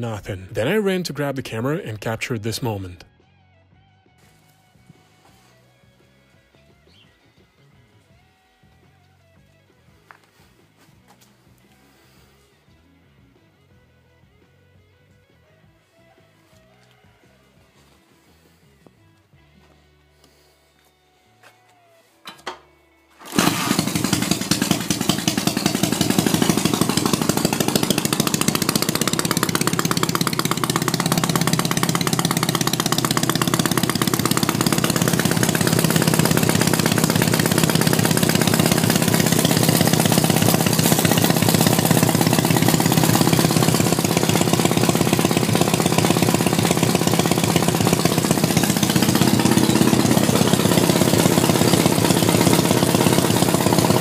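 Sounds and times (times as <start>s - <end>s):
motorcycle engine running: 4.2s - 12.5s, 23.2s - 54.0s.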